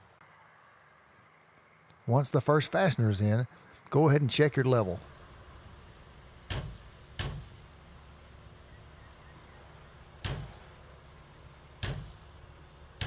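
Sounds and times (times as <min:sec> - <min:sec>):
low background rumble: 0:03.0 - 0:13.0
knocks on metal canopy frame: 0:06.5 - 0:07.6, 0:10.2 - 0:10.7, 0:11.8 - 0:12.3.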